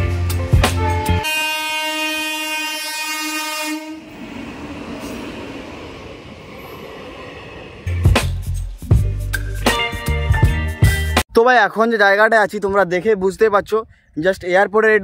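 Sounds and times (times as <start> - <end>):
horn blowing steady tone: 0.8 - 6.3
steady rushing noise: 4.0 - 9.0.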